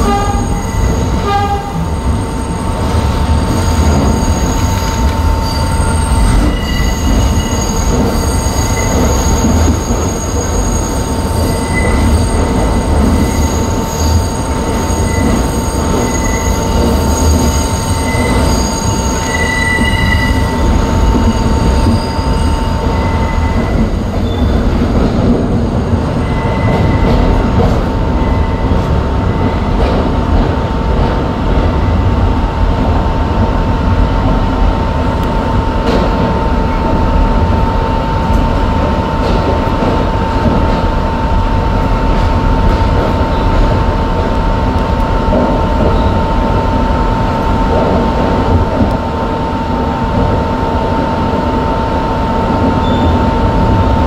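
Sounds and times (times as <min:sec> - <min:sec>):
subway train rumbling: 0:00.0 - 0:54.0
wheel squeal: 0:03.4 - 0:24.6.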